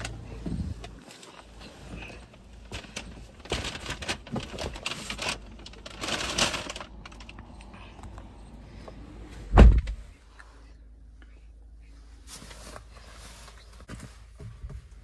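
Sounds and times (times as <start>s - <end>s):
heavy thump: 9.5s - 10.1s.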